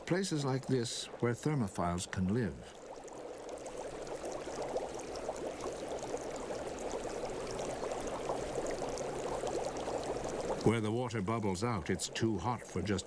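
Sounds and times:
water bubbling and splashing: 0.0 - 13.0.

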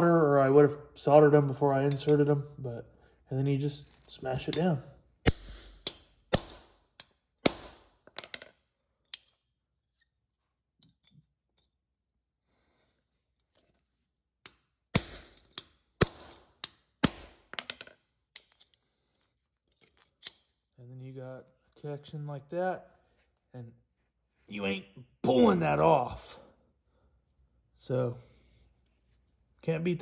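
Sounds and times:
hammer striking metal crimper: 5.2 - 9.5, 14.4 - 17.8.

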